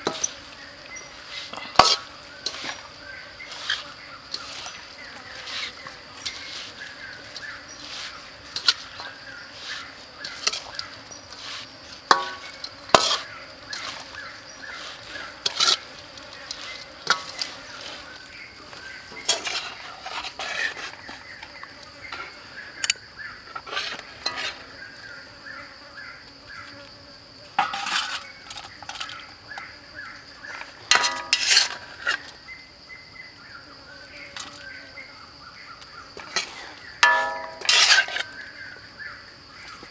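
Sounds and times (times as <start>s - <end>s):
high insect drone: 0.0s - 39.9s
metal spoon scraping steel wok: 1.3s - 2.8s, 3.5s - 4.8s, 5.4s - 14.1s, 14.8s - 15.8s, 23.6s - 24.7s, 30.9s - 32.2s, 36.3s - 38.4s.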